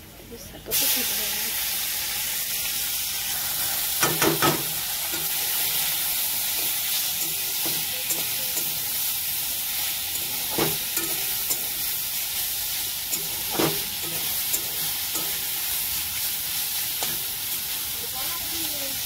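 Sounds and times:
greens sizzling in hot oil: 0:00.6 - 0:19.0.

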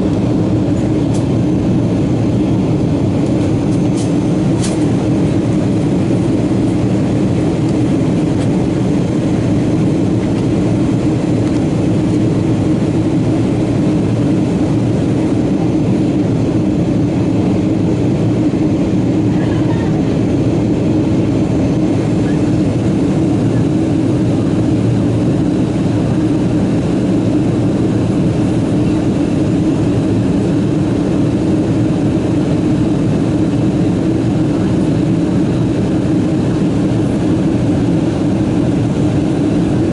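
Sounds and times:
airliner cabin engine drone: 0:00.0 - 0:39.9.

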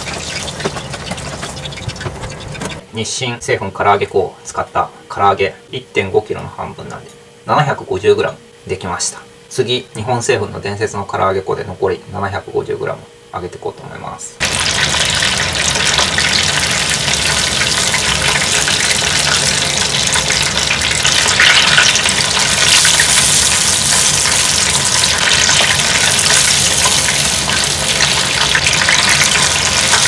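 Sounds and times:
chicken deep-frying in oil: 0:00.0 - 0:02.8, 0:14.4 - 0:30.0.

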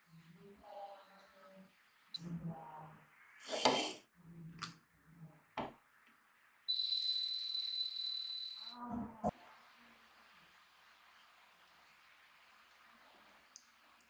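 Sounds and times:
high electronic beep: 0:06.7 - 0:08.8.

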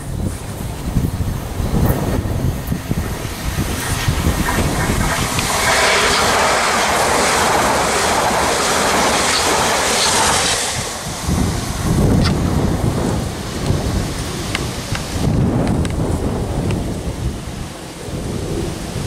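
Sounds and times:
train passing at speed: 0:00.0 - 0:19.0.

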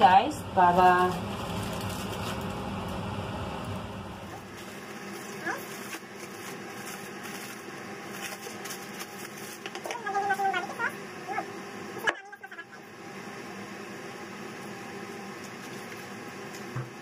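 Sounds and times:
aluminium foil crinkling: 0:01.0 - 0:02.6, 0:04.4 - 0:11.0.

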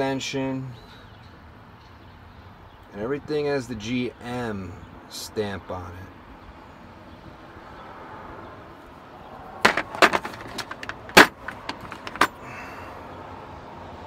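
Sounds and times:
metal sockets clinking: 0:09.7 - 0:12.4.

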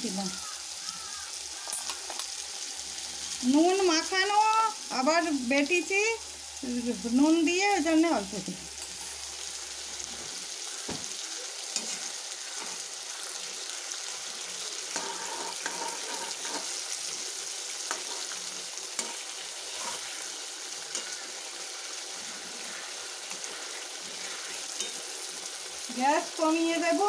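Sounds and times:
curry sizzling in a pan: 0:00.0 - 0:27.0
spatula scraping a metal pan: 0:11.8 - 0:12.9, 0:14.9 - 0:16.9, 0:17.8 - 0:18.4, 0:19.0 - 0:21.3, 0:22.1 - 0:25.1.

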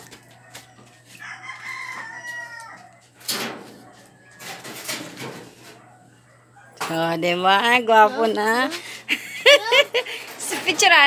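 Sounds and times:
rooster crowing: 0:00.0 - 0:03.2.

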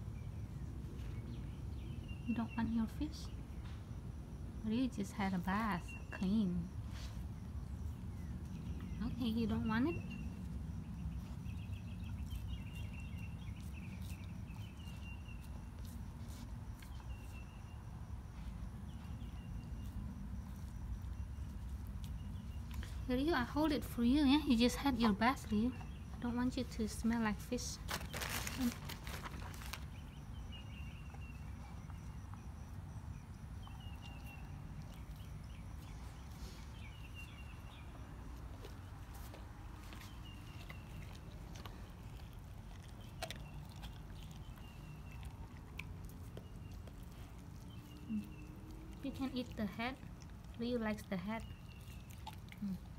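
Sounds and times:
low background rumble: 0:00.0 - 0:52.9
small bird chirping: 0:07.7 - 0:52.9
dog licking with wet clicks: 0:38.4 - 0:52.9.

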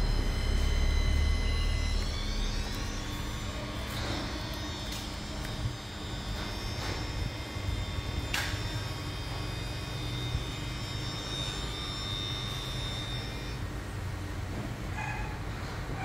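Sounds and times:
electric motor humming: 0:00.0 - 0:14.3
high motor whine: 0:00.0 - 0:15.0
sharp click: 0:08.3 - 0:08.7.

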